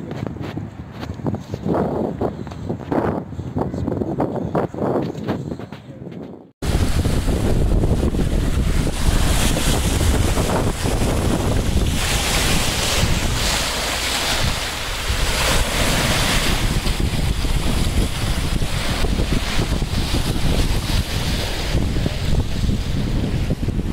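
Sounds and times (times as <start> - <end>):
wind rumbling on microphone: 0.0 - 23.9
small waves lapping and splashing: 6.6 - 23.9.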